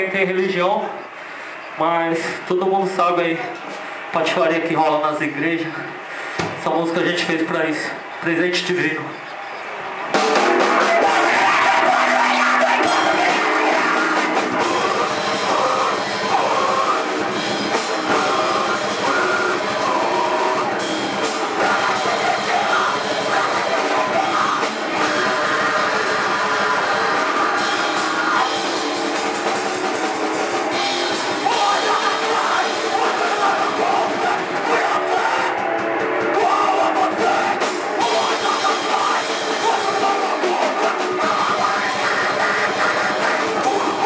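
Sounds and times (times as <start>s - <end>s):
distorted electric guitar: 0.0s - 44.0s
harsh screamed vocals: 0.0s - 44.0s
drum kit: 9.7s - 44.0s.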